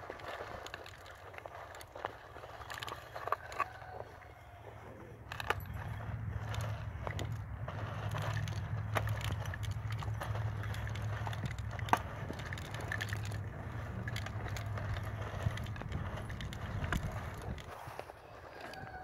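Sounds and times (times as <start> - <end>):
wheels crunching over dry soil: 0.0 - 19.0
steady low rumble: 4.8 - 17.8
seeder frame rattling: 5.2 - 18.0.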